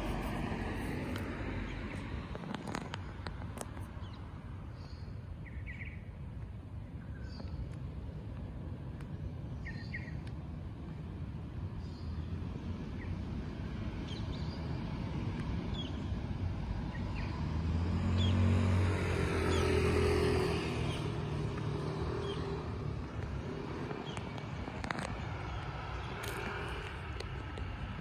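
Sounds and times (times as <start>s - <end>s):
vehicle passing by: 0.0s - 2.9s, 12.7s - 28.0s
street background noise: 0.0s - 28.0s
bird chirps: 9.6s - 10.2s.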